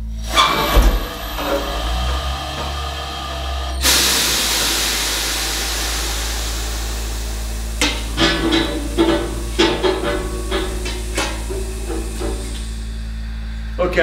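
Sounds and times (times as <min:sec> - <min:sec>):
hydraulic pump motor humming: 0:00.0 - 0:14.0
loud steady hiss: 0:00.0 - 0:14.0.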